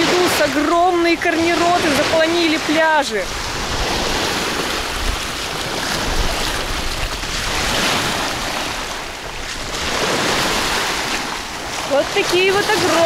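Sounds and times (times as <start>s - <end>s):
small waves washing on sandy shore: 0.0s - 13.0s
wind rumbling on microphone: 0.0s - 13.0s.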